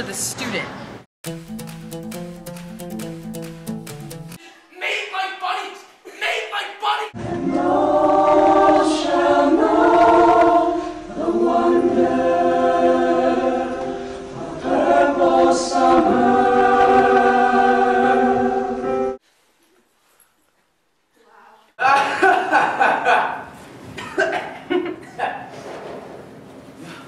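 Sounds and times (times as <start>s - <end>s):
choir singing chords: 7.2s - 19.2s.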